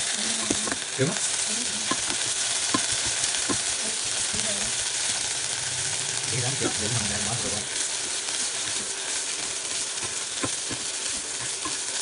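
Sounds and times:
food sizzling in a pan: 0:00.0 - 0:12.0
spoon knocking and scraping pan: 0:01.8 - 0:03.8, 0:08.6 - 0:12.0.

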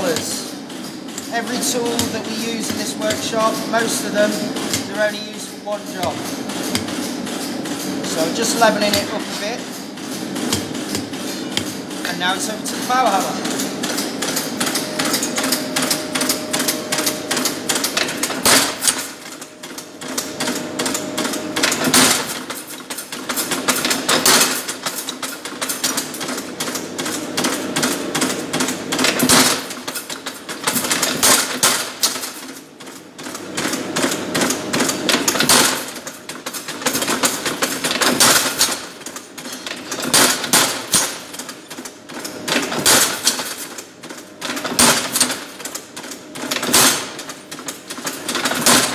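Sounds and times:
power hammer pounding iron: 0:01.1 - 0:19.2.

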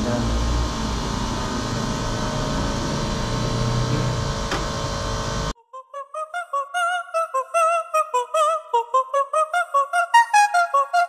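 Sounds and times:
mechanical whirring hum: 0:00.0 - 0:05.6.

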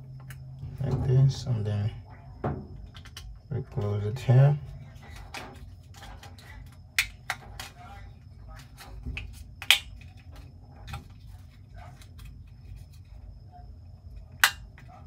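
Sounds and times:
low steady hum: 0:00.0 - 0:15.0
plastic clicks and snaps: 0:07.0 - 0:07.8, 0:09.2 - 0:11.1, 0:14.4 - 0:14.9.

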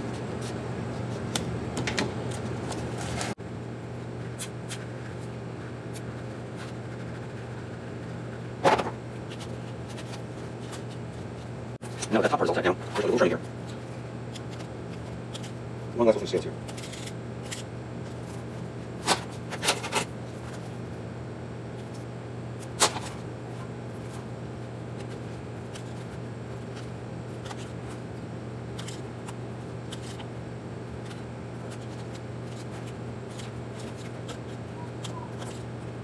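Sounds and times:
steady low hum: 0:00.0 - 0:36.0
scissors snipping foam: 0:31.0 - 0:35.7.

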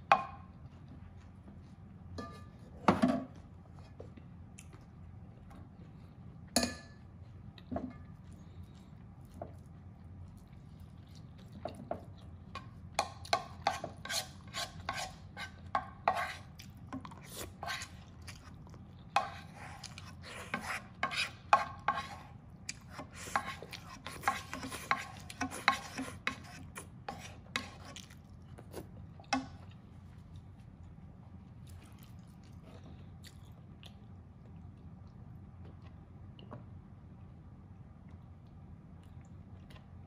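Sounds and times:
wooden spoon scraping a pan: 0:13.6 - 0:16.5, 0:17.5 - 0:18.0, 0:19.2 - 0:28.0.

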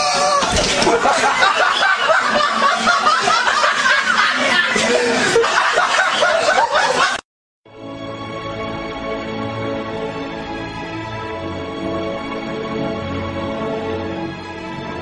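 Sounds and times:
hard continuous laughter: 0:00.2 - 0:07.2
music: 0:07.7 - 0:15.0.

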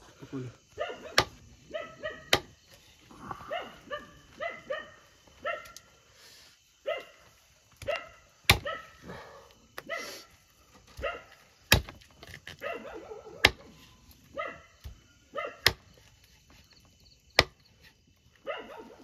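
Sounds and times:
dog barking: 0:00.7 - 0:02.4, 0:03.4 - 0:05.8, 0:06.8 - 0:09.2, 0:09.8 - 0:10.3, 0:11.0 - 0:11.4, 0:12.6 - 0:13.6, 0:14.3 - 0:15.8, 0:18.4 - 0:19.0.

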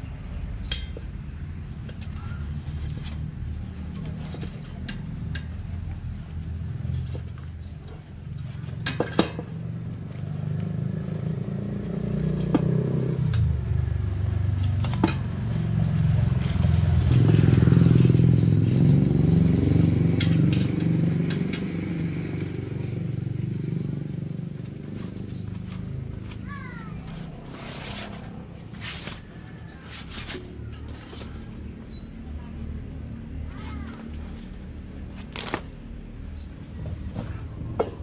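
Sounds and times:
tire clicks and knocks: 0:14.2 - 0:18.2.

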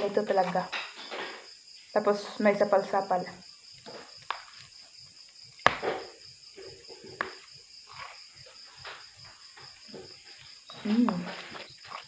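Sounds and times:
crickets chirping: 0:00.0 - 0:12.0
soft eating sounds: 0:06.5 - 0:12.0.

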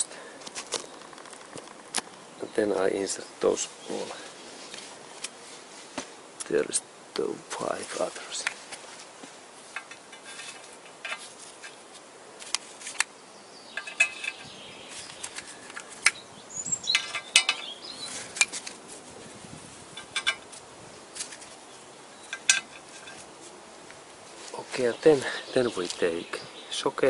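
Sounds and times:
steel bolts clinking: 0:13.8 - 0:14.5, 0:16.8 - 0:17.8, 0:20.0 - 0:20.5, 0:22.2 - 0:23.2.

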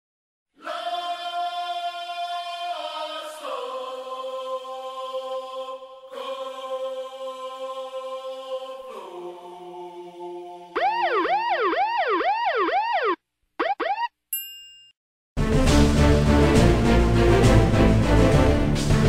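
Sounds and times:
choir-like chord music: 0:00.6 - 0:10.8, 0:15.4 - 0:19.0
warbling siren-like tone: 0:10.8 - 0:14.1.

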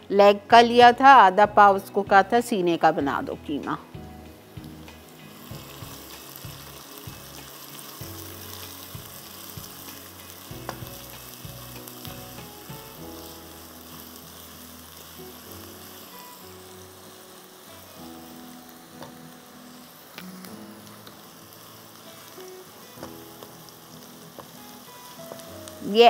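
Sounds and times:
onions sizzling in hot oil: 0:00.0 - 0:26.0.

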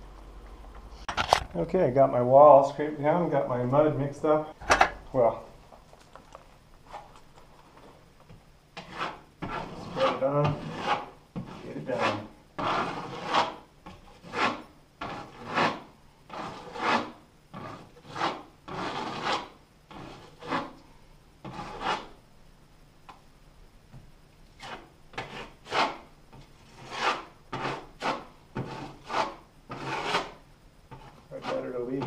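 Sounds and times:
putty knife scraping wall: 0:08.8 - 0:20.8, 0:21.4 - 0:22.2, 0:24.6 - 0:32.0.

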